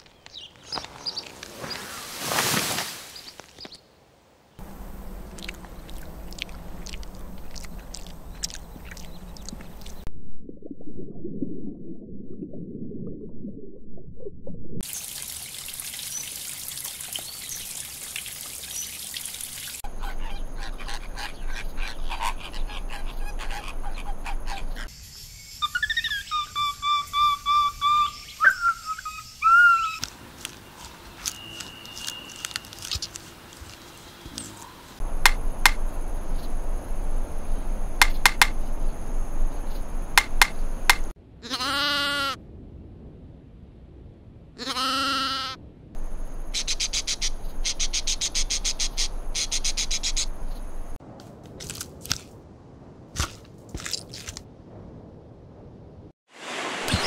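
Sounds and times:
low rumble: 4.6 - 14.8, 35.0 - 40.9, 42.4 - 44.6
monkey whistled calls: 25.6 - 30.0
woodpecker pecking bark: 34.5 - 35.9, 38.0 - 38.6, 40.1 - 41.1
goat bleating: 41.4 - 42.4, 44.6 - 45.6
hissing water-like wash: 56.3 - 57.0.

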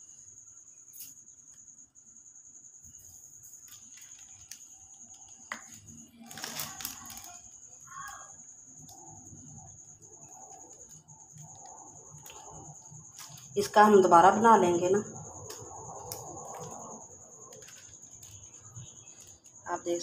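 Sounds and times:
plastic sheet rustling: 5.8 - 7.9.

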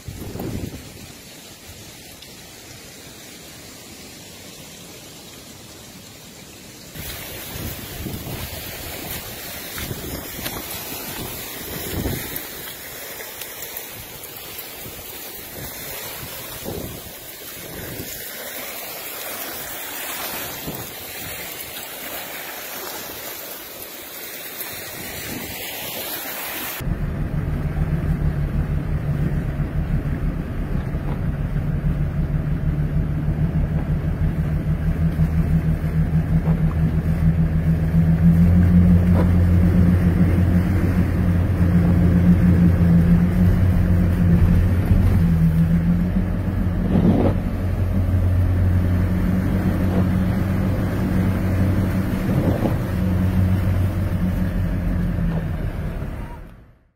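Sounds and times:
wind-driven rain hissing: 0.0 - 56.2
vehicle engine drone: 26.8 - 56.9.

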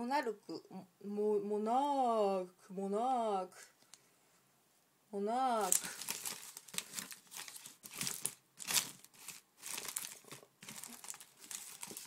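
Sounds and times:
plastic wrappers crinkling: 5.6 - 12.0.

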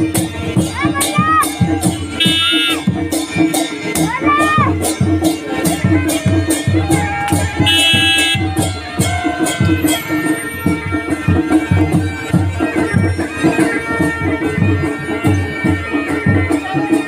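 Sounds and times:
steady drum beat: 0.0 - 17.0
bagpipes droning melody: 1.8 - 3.2, 5.4 - 17.0.

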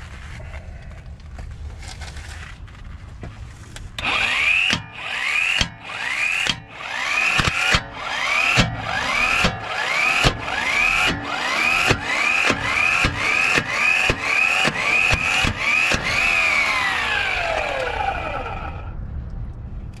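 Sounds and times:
impact wrench hammering: 4.0 - 17.9
motor whine: 4.0 - 19.0.

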